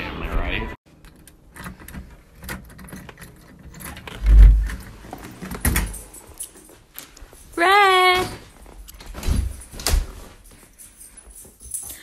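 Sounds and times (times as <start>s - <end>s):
key turning in lock: 0.9s - 7.2s
key ring jingling: 1.0s - 12.0s.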